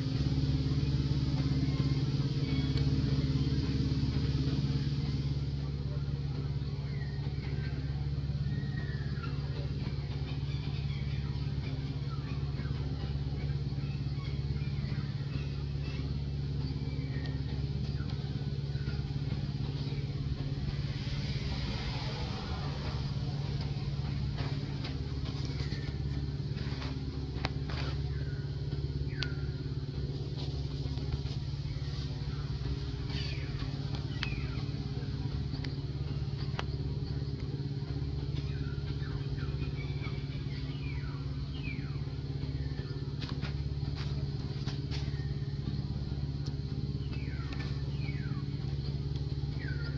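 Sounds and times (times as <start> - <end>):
engine idling: 0.0 - 49.9.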